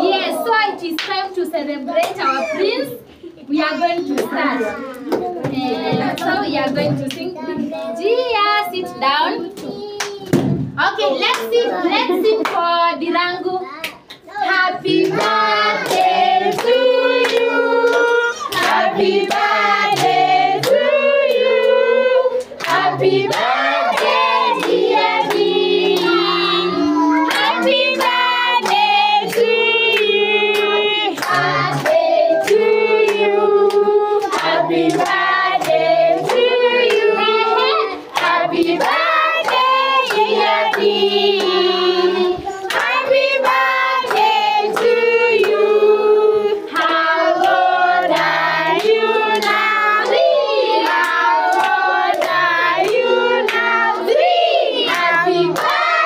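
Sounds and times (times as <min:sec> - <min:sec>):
children singing: 0:14.3 - 0:56.0
hands clapping: 0:15.0 - 0:20.8, 0:22.4 - 0:26.2, 0:27.2 - 0:37.1, 0:38.1 - 0:41.6, 0:42.7 - 0:45.6, 0:46.8 - 0:54.2, 0:54.9 - 0:56.0.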